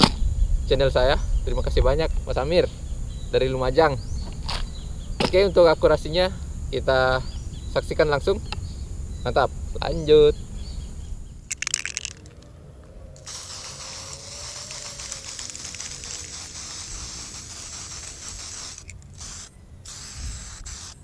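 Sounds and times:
spray-paint can hissing: 0:13.2 - 0:21.0.

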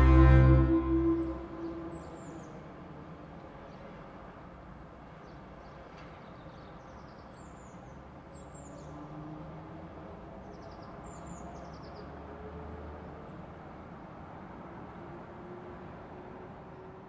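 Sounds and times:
low outdoor rumble: 0:00.0 - 0:02.4.

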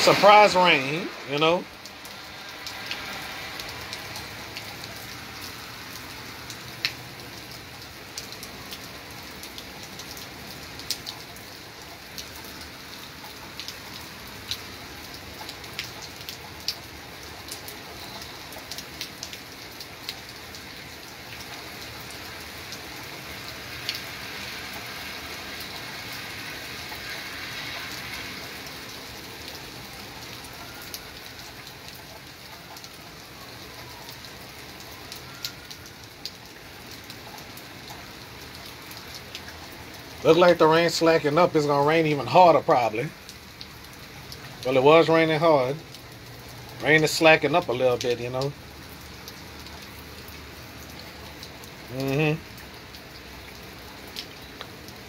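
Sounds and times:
heavy rain falling: 0:00.0 - 0:55.0
raindrops ticking: 0:00.0 - 0:55.0.

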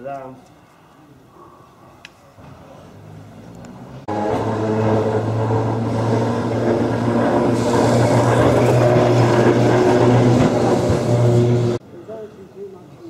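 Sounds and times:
electric tram hum: 0:02.9 - 0:11.8
wheels running on rails: 0:04.0 - 0:11.8.

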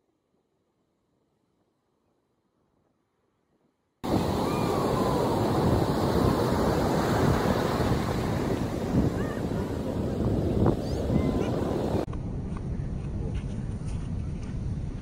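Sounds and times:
ocean surf breaking: 0:04.0 - 0:12.1
wind buffeting microphone: 0:04.0 - 0:15.0.

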